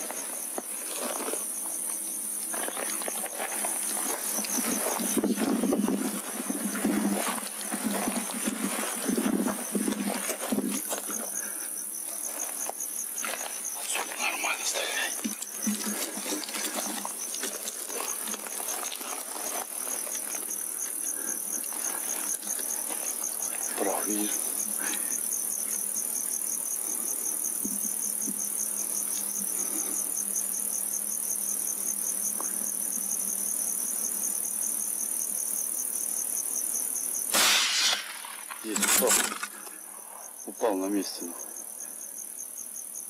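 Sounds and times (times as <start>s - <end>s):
night insects chirping: 0.0s - 43.0s
steady high hiss: 0.0s - 43.0s
rustling crackle: 15.3s - 23.7s, 37.3s - 40.2s.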